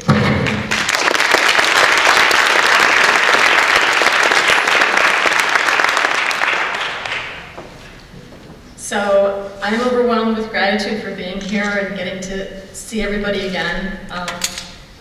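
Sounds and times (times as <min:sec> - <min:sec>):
audience applauding: 0:00.4 - 0:07.6.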